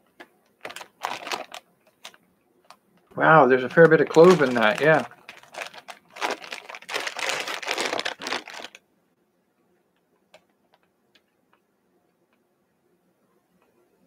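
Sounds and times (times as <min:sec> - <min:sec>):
plastic packaging crinkling: 0:00.5 - 0:02.2, 0:03.2 - 0:08.8.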